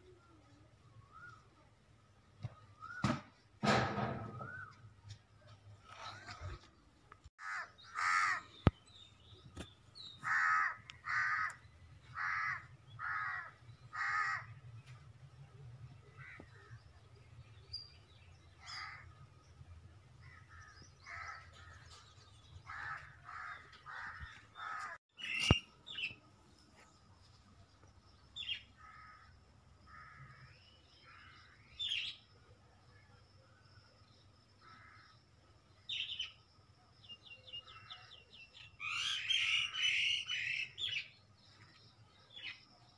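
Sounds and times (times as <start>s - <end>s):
crow cawing: 7.4s - 8.5s, 10.2s - 14.6s, 22.7s - 25.0s, 28.8s - 29.3s, 29.9s - 31.5s, 34.6s - 35.2s.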